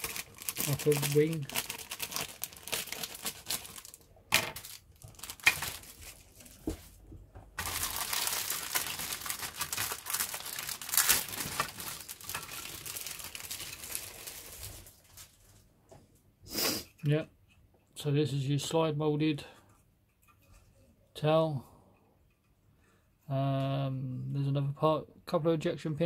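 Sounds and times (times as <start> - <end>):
plastic bag crinkling: 0.0 - 7.0, 7.6 - 15.7.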